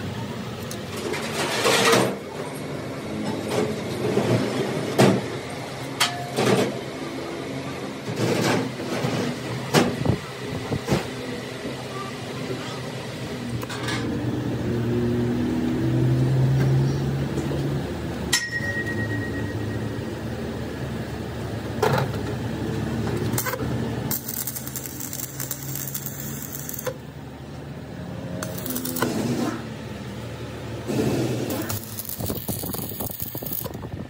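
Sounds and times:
workshop hum: 0.0 - 34.0
stick welding crackling: 23.4 - 27.0, 28.4 - 29.6, 30.9 - 34.0.

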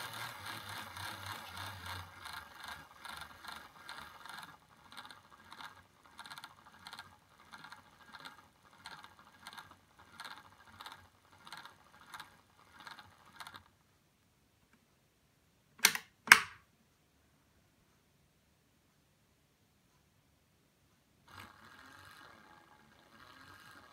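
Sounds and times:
plastic gears clattering: 0.0 - 13.7
sharp clicks: 15.8 - 16.7.

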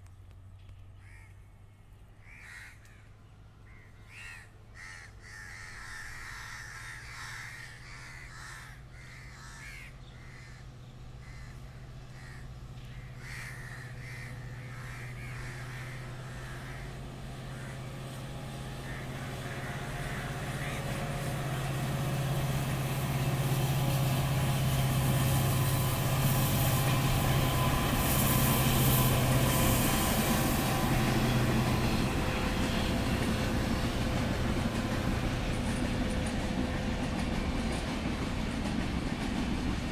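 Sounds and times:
diesel locomotive droning: 0.0 - 39.9
crows cawing: 1.0 - 1.5, 2.2 - 21.7
train coaches rolling past: 10.2 - 39.9.

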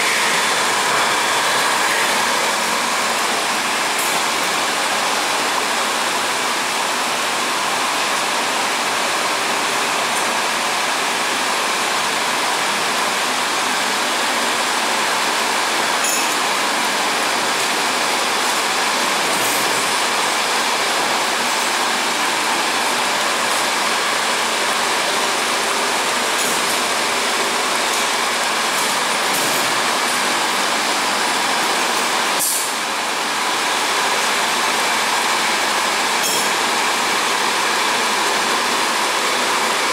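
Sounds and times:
power feeder motor running: 0.0 - 6.8.

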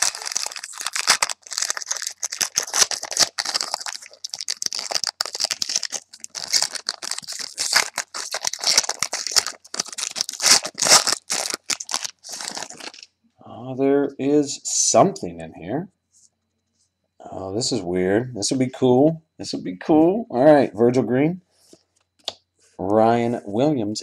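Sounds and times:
foil wrappers crinkling: 0.0 - 13.1.

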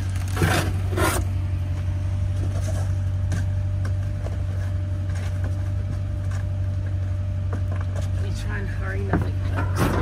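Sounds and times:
items rustling in cardboard box: 0.0 - 1.4
low mechanical hum: 0.0 - 10.0.

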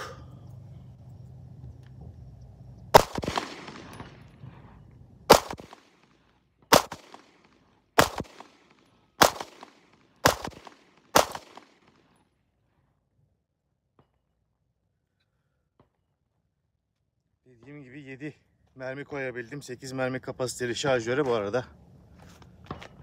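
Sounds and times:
pistol shots: 2.9 - 4.4, 5.3 - 6.1, 6.7 - 11.9.

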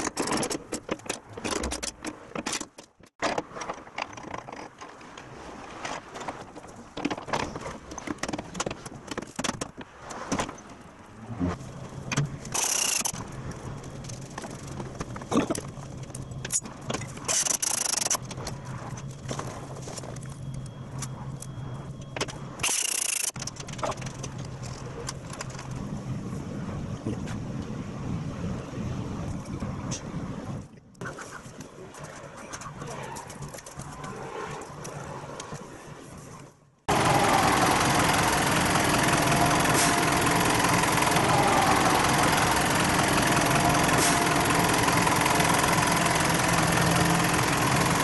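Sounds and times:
ratchet and tools clicking on metal: 12.5 - 13.2, 17.3 - 18.2, 22.6 - 23.4.

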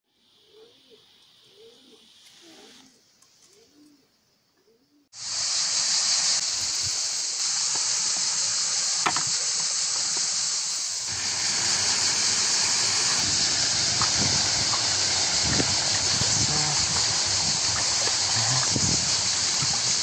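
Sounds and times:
cicadas droning: 0.1 - 20.0
water running over stones: 5.2 - 20.0.

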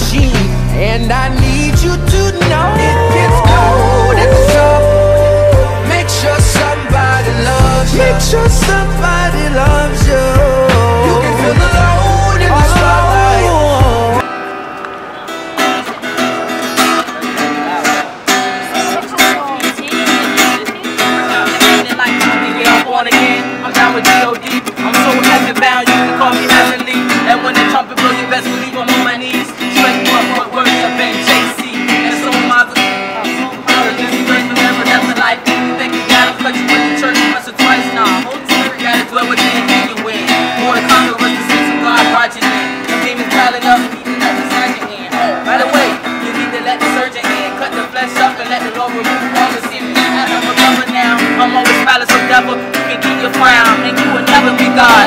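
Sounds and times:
acoustic guitar strumming: 0.0 - 55.0.

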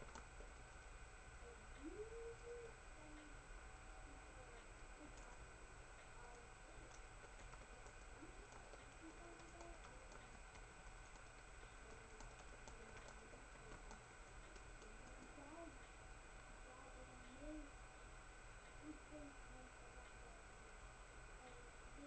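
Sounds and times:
faint clicks: 0.0 - 0.5, 4.6 - 5.4, 6.0 - 16.0
faint hiss and hum: 0.0 - 22.0.

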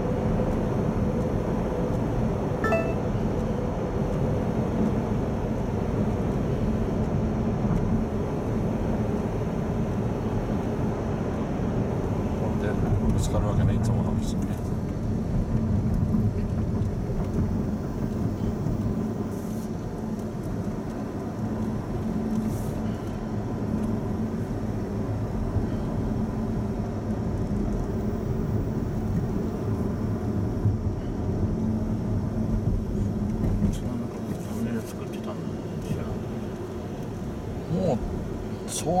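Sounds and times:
in-cabin road and engine rumble: 0.0 - 39.0.

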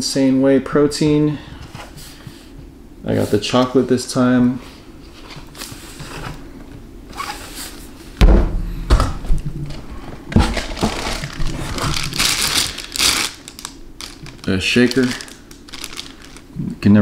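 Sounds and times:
heavy thumps in cardboard box: 8.2 - 9.3
plastic packaging rustling: 9.7 - 16.6.

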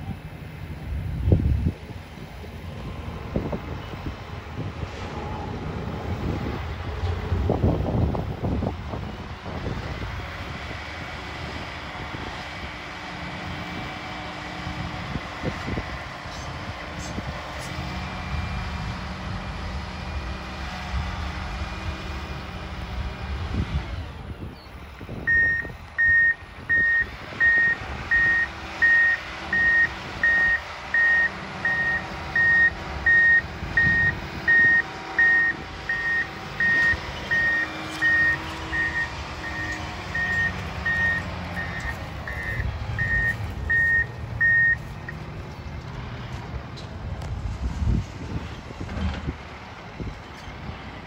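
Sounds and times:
diesel engine running: 0.0 - 51.0
backup alarm beeping: 25.3 - 45.2.

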